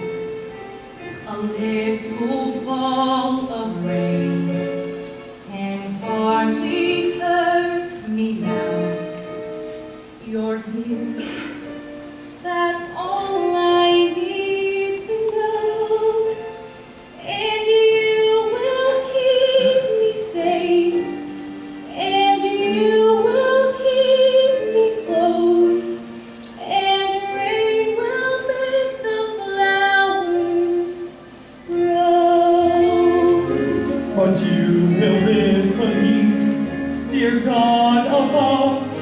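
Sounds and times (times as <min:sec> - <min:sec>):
woman singing a slow ballad: 0:01.2 - 0:04.9, 0:05.5 - 0:09.3, 0:10.2 - 0:11.7, 0:12.4 - 0:16.6, 0:17.2 - 0:33.9.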